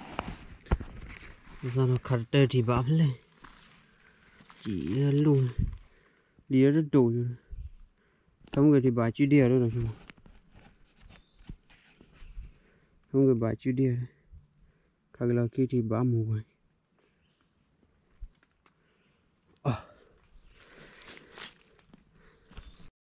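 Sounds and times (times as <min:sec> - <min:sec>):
insects singing: 0:00.1 - 0:22.9
man speaking: 0:01.6 - 0:03.2, 0:04.6 - 0:05.7, 0:06.5 - 0:07.5, 0:08.5 - 0:10.0, 0:13.1 - 0:14.2, 0:15.2 - 0:16.5.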